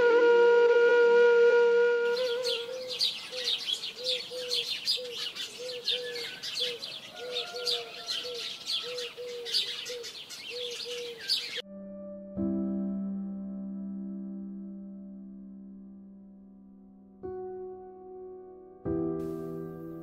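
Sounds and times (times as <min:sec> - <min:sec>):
low hooked bird call: 0:02.1 - 0:11.6
small birds chirping: 0:02.1 - 0:11.6
soft sustained music chord: 0:11.5 - 0:20.0.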